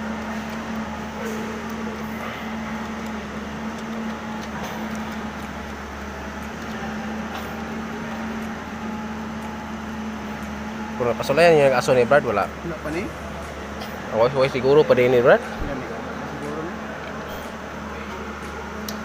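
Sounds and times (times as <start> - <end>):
steady mechanical hum: 0.0 - 19.0.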